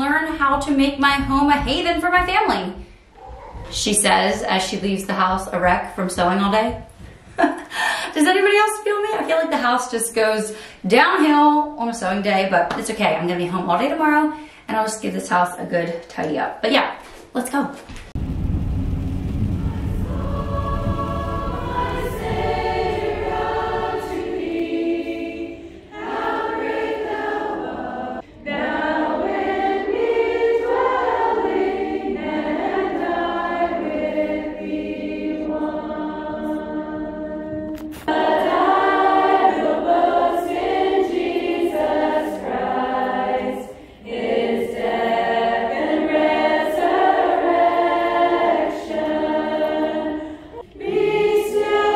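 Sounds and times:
low rumble: 18.2 - 25.7
women singing a hymn: 19.7 - 51.9.

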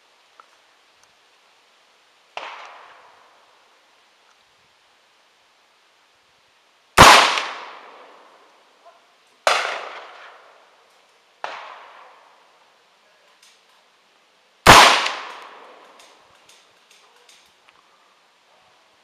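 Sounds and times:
rifle shots with echo: 7.0 - 8.1, 9.4 - 10.4, 11.4 - 12.2, 14.7 - 16.0.

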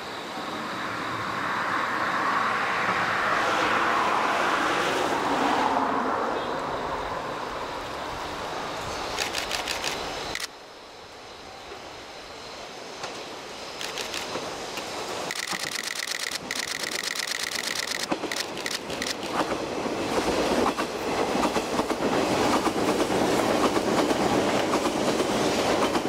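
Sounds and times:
road vehicle passing: 1.0 - 7.6
sharp clicks: 9.1 - 10.5, 13.8 - 19.6.

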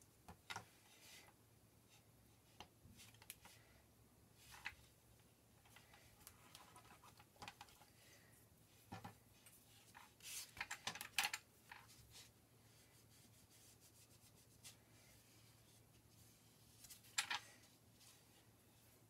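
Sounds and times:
small rubs and clicks: 5.6 - 7.9, 8.8 - 12.3.

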